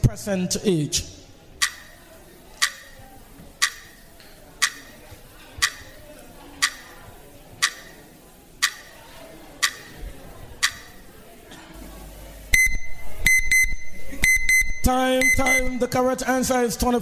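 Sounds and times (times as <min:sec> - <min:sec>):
timer ticking: 0:01.6 - 0:05.0, 0:05.6 - 0:11.1, 0:12.1 - 0:16.0
electronic alarm pulsing beeps: 0:12.5 - 0:16.0.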